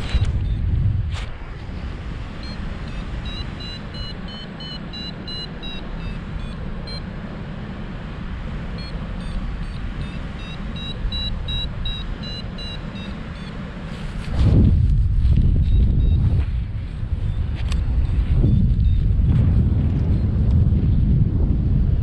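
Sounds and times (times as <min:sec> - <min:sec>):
wind noise on microphone: 0:00.0 - 0:22.0
short high beeps: 0:02.4 - 0:07.1, 0:08.8 - 0:13.6.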